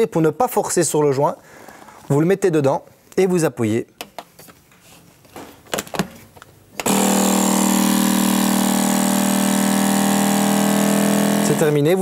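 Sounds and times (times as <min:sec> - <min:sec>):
vacuum pump running: 0:06.8 - 0:11.8.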